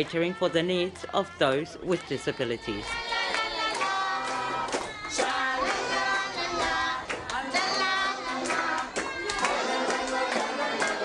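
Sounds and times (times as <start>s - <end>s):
children singing together: 1.9s - 11.0s
hands clapping: 3.2s - 11.0s.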